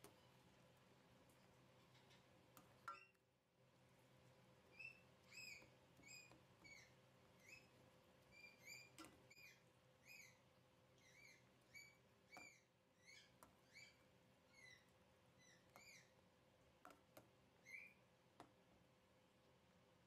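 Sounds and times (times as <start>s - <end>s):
steel spoon squeaking in pan: 4.7s - 7.7s, 8.3s - 10.4s.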